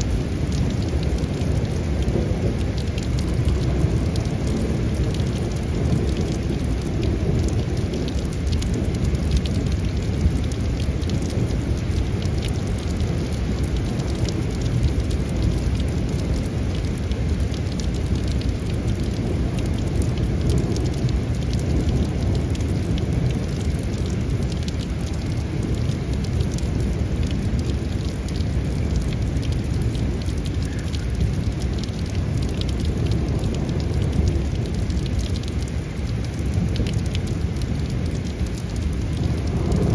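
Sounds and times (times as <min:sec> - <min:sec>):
rain drops ticking: 0:00.0 - 0:39.9
deep steady rumble: 0:36.3 - 0:39.9.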